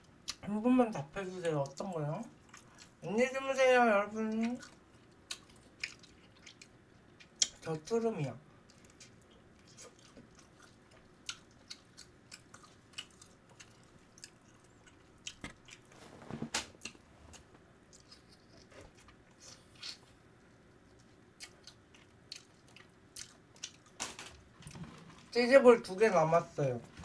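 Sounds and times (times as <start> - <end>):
person chewing crunchy food: 2.4 - 3.0, 4.4 - 7.6, 8.6 - 15.9, 16.8 - 20.1, 20.7 - 25.3.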